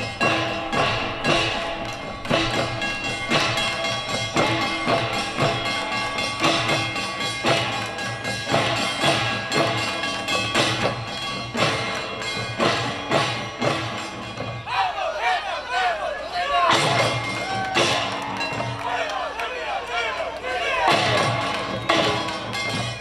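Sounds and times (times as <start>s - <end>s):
ringing tones: 0.0s - 14.7s
drummers playing percussion: 0.0s - 23.0s.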